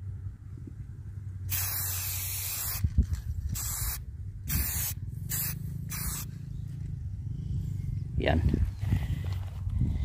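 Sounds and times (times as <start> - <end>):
steady low rumble: 0.0 - 10.0
spray can hissing: 1.5 - 2.8, 3.5 - 6.3.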